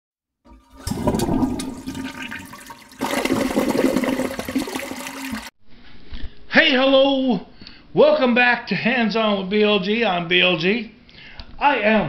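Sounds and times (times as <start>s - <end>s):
water rushing and gurgling: 0.6s - 5.5s.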